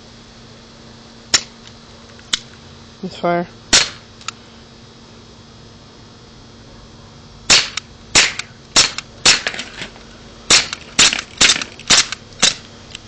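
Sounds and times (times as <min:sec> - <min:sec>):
bb pistol pops: 0:01.3 - 0:01.6, 0:03.7 - 0:04.4, 0:07.5 - 0:09.6, 0:10.5 - 0:12.7.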